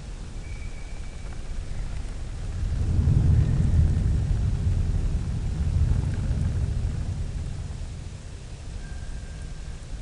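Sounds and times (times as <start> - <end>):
rain hissing: 1.4 - 8.8
low rolling thunder: 2.2 - 8.8.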